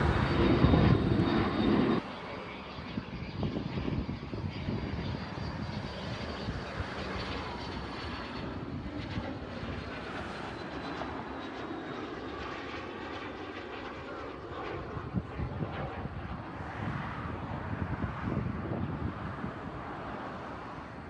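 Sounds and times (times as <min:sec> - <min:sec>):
small airplane engine drone: 0:00.0 - 0:21.0.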